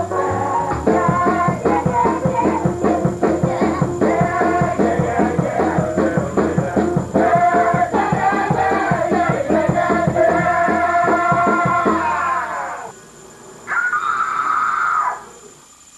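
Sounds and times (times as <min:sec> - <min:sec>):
band playing: 0:00.0 - 0:12.5
person singing: 0:00.0 - 0:12.9.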